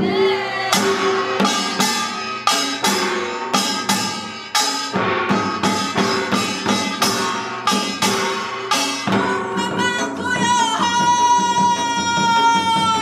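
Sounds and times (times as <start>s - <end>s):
drums playing steady beat: 0.0s - 13.0s.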